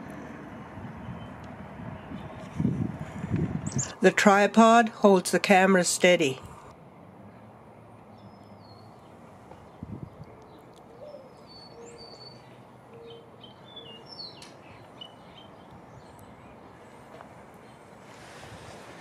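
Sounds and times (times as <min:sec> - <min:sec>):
small birds chirping: 0:03.6 - 0:04.0, 0:08.1 - 0:18.0
dove cooing: 0:10.9 - 0:12.0.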